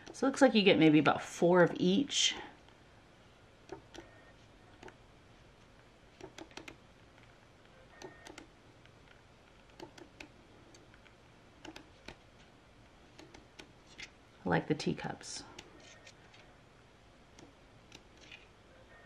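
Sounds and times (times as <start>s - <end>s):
paper pages turning with clicks: 18.2s - 18.5s.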